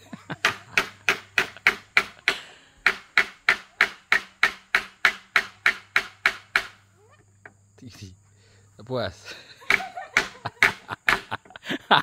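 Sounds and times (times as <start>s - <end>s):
hammer driving nail into wood: 0.4s - 6.8s.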